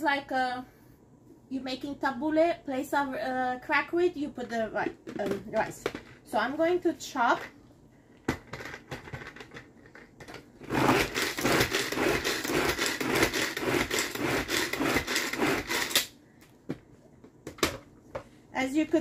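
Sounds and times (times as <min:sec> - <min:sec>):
hand chopper chopping onion: 0:10.6 - 0:16.1.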